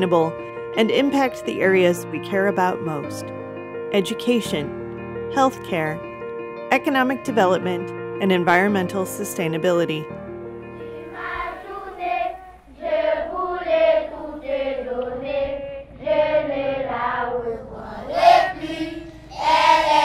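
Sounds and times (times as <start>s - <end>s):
music bed: 0.0s - 20.0s
children singing together: 10.9s - 20.0s.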